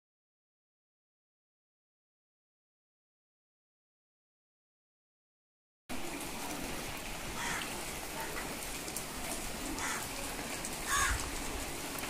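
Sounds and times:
steady rain falling: 5.9s - 12.0s.

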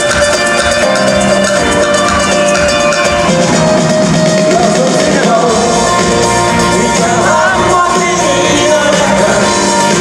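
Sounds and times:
drums playing: 0.0s - 10.0s.

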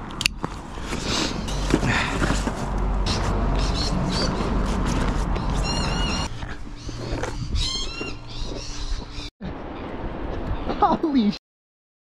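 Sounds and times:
high-pitched animal calls: 5.5s - 9.3s.

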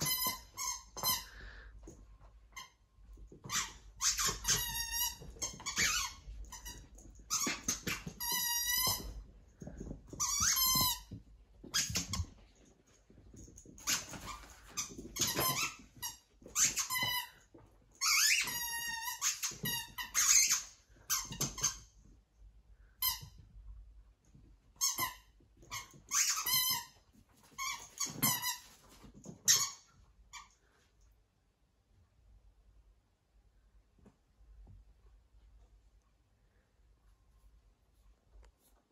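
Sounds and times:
squeaky toy squeaking: 0.0s - 1.3s, 3.4s - 9.2s, 13.8s - 17.3s, 18.0s - 21.8s, 24.8s - 28.7s.

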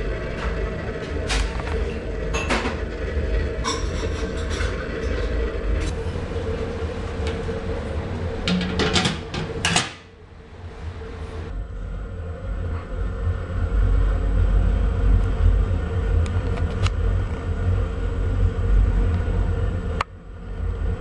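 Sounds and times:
oil heater rumbling: 0.0s - 21.0s.

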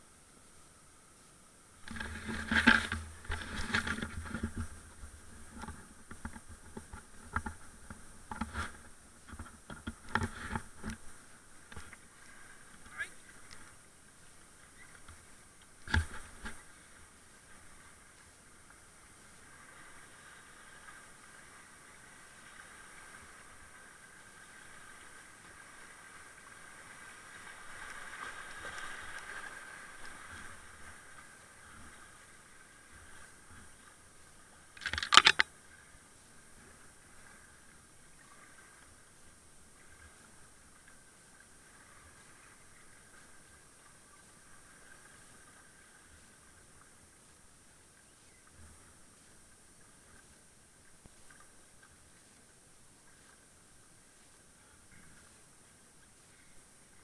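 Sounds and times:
kayak scraping against branches: 1.8s - 13.5s, 14.7s - 16.9s, 34.8s - 35.4s
water splashes: 1.8s - 47.2s
faint clicks: 12.7s - 13.7s, 34.6s - 35.5s.

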